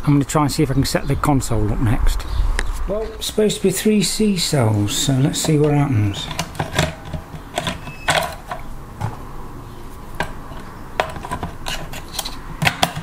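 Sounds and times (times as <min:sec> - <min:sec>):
batteries knocking in plastic casing: 0:05.5 - 0:09.2, 0:10.2 - 0:13.0.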